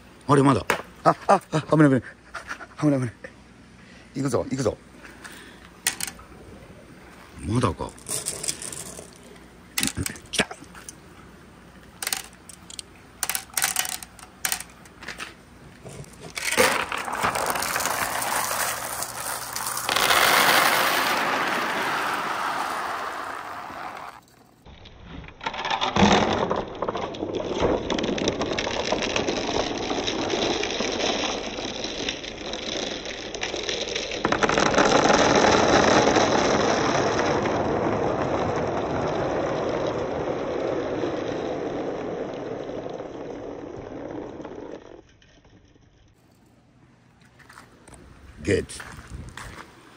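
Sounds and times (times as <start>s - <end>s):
glass marbles clicking into bamboo: 5.8s - 6.2s, 7.9s - 11.0s, 12.0s - 15.0s
marbles rolling down a board: 5.8s - 6.2s, 7.5s - 11.0s, 11.9s - 46.0s.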